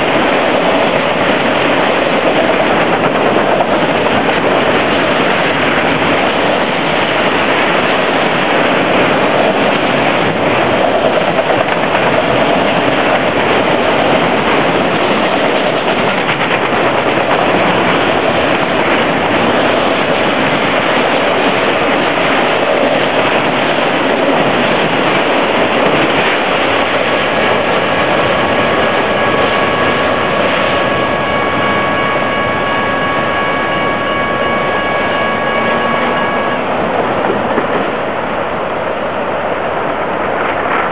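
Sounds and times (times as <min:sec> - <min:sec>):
steady high tone: 0:27.0 - 0:39.2.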